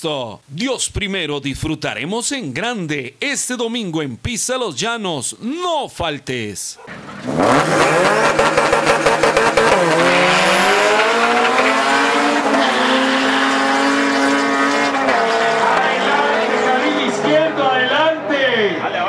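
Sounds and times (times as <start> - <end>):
drag car engines revving: 6.9 - 19.0.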